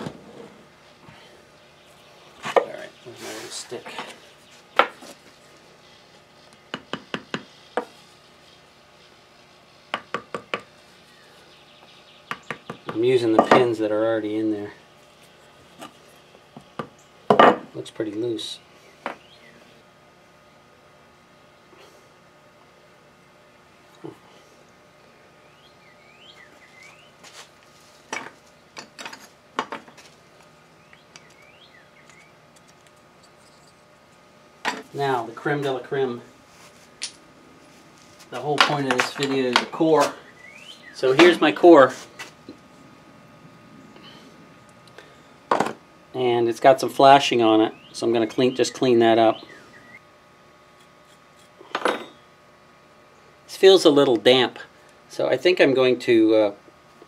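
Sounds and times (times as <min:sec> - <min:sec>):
pieces knocking on wooden workbench: 0:16.8 - 0:17.7, 0:45.5 - 0:45.8
bird chirping: 0:18.8 - 0:19.8, 0:25.4 - 0:27.2, 0:30.8 - 0:32.4, 0:40.2 - 0:41.2, 0:47.7 - 0:50.0.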